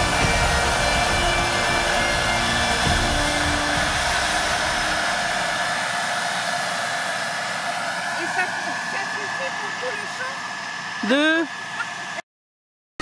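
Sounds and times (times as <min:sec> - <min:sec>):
seeder fan whine: 0:00.0 - 0:12.2
tractor engine rumble: 0:00.0 - 0:12.2.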